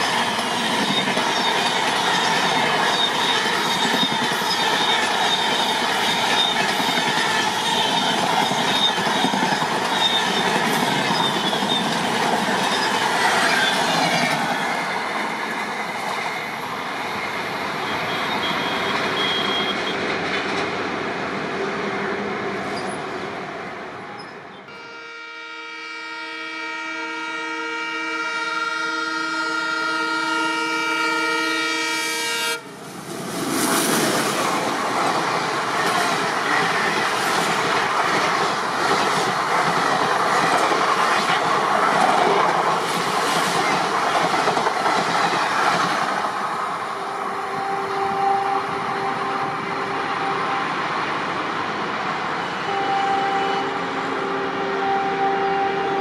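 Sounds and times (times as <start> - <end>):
train running noise: 0.0 - 24.9, 29.4 - 56.0
locomotive air horn blast: 24.7 - 32.7, 47.0 - 50.8, 52.6 - 56.0.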